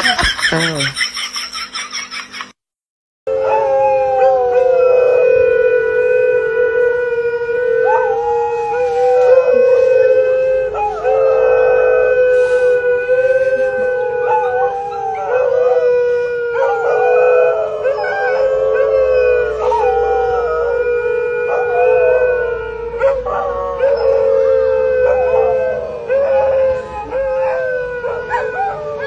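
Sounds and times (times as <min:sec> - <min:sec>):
dogs howling: 0:03.3 - 0:29.0.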